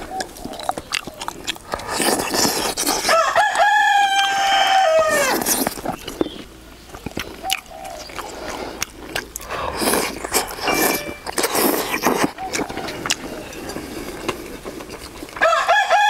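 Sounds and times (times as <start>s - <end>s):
rooster crowing: 3.1s - 5.3s, 15.4s - 16.0s.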